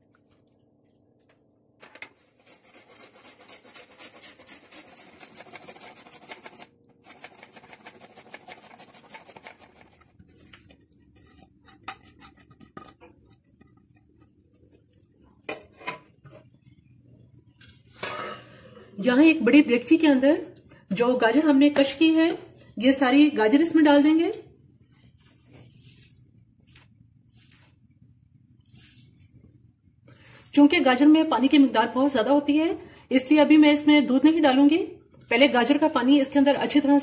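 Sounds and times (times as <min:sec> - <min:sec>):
carrot rasping on grater: 0:02.2 - 0:10.1.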